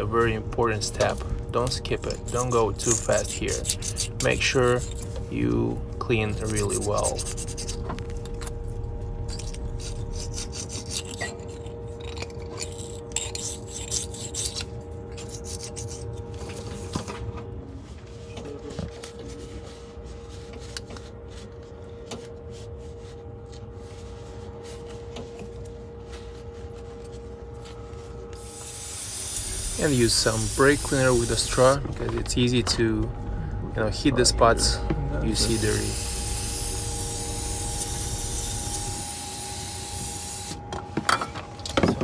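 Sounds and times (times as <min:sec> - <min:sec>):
faint steady hum: 0:00.0 - 0:42.0
blade scraping gasket residue: 0:02.0 - 0:05.2, 0:06.4 - 0:08.4, 0:09.2 - 0:16.8.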